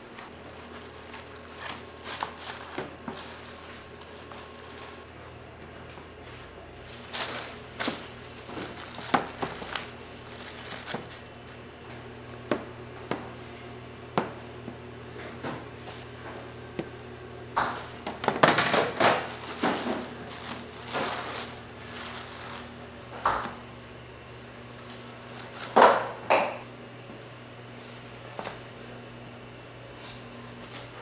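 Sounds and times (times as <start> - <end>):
steady low hum: 0.0 - 31.0
plastic wrap crinkling: 0.1 - 5.1, 6.8 - 11.7, 17.7 - 23.6, 24.7 - 26.1.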